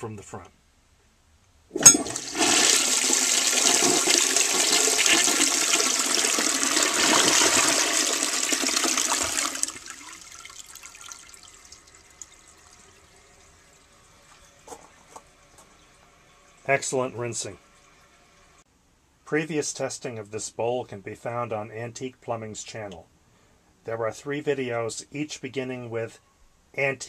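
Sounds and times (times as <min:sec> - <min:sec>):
toilet flush click: 0:01.8 - 0:09.8
toilet flushing water rush: 0:01.8 - 0:14.0
water trickle: 0:08.8 - 0:16.7.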